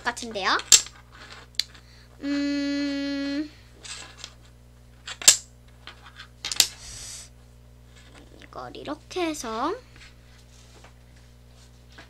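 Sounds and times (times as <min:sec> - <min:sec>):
child humming: 0:02.2 - 0:03.6, 0:06.8 - 0:07.3.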